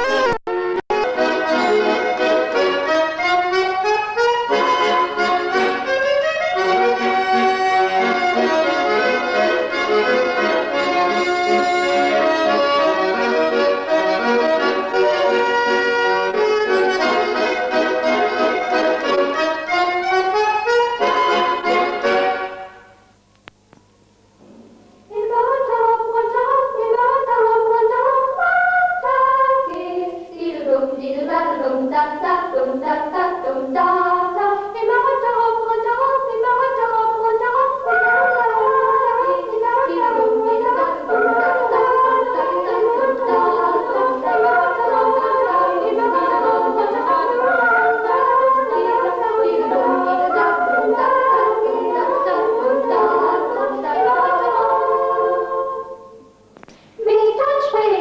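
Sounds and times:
group singing in parts: 0:25.1 - 0:56.3, 0:57.0 - 0:58.0.

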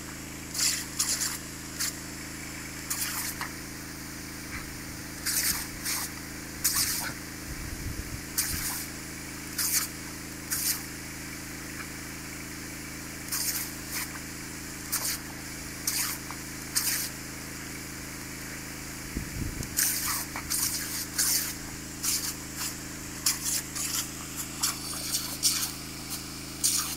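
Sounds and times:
water jet splashing: 0:00.5 - 0:02.0, 0:02.8 - 0:07.4, 0:08.2 - 0:11.0, 0:13.2 - 0:17.3, 0:19.7 - 0:26.9
water hissing from pipe leak: 0:00.5 - 0:07.4, 0:08.2 - 0:19.1, 0:19.7 - 0:26.9.

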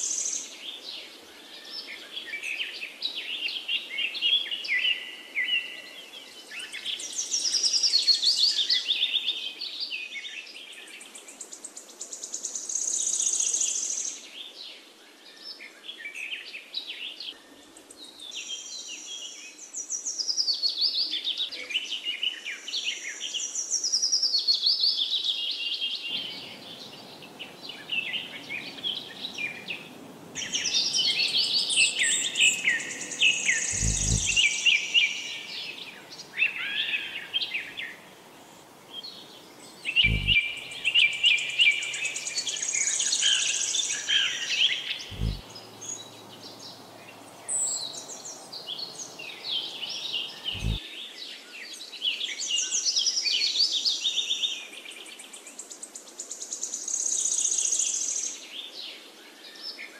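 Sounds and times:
songbirds singing and chirping: 0:00.0 - 0:59.9
faint low rumble: 0:26.1 - 0:42.4, 0:45.0 - 0:50.8.

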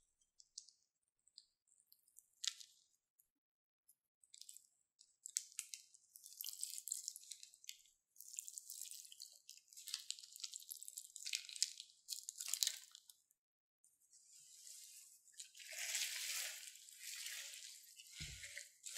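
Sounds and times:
slime wet crackling and dripping: 0:00.0 - 0:03.0, 0:04.2 - 0:13.4.

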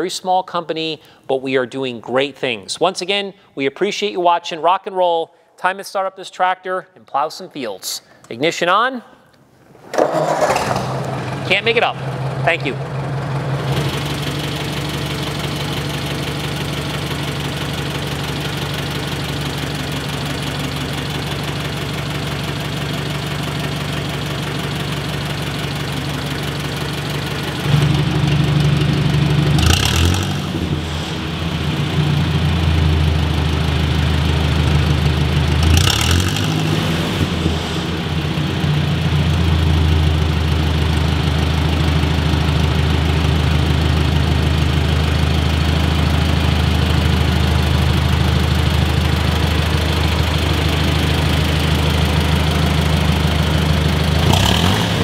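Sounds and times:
engine revving: 0:10.0 - 0:17.1, 0:26.3 - 0:41.3, 0:50.0 - 0:55.0
tractor engine idling: 0:10.2 - 0:55.0.

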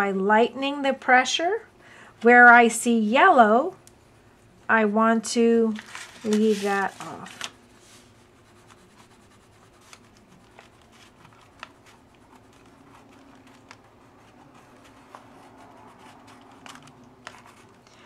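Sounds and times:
pencil scratching on paper: 0:07.8 - 0:17.8
pencil ticking on paper: 0:08.4 - 0:17.9.

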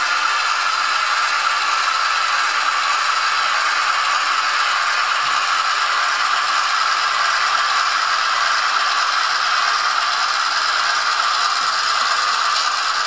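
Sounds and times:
model train wheels rattling: 0:00.0 - 0:13.0.

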